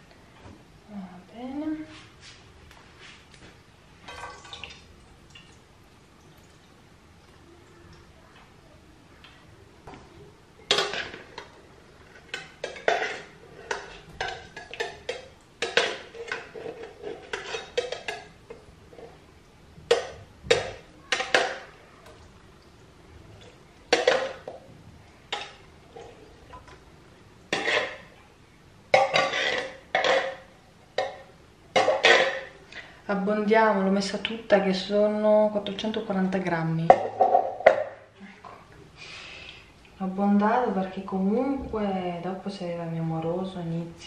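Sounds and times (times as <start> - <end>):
tin can scraping against pan: 10.7 - 18.3, 27.5 - 28.1, 28.9 - 30.4.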